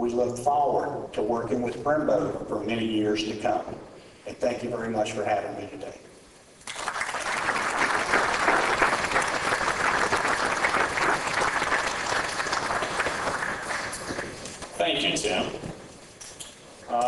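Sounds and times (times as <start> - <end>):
audience applauding: 6.6 - 14.8.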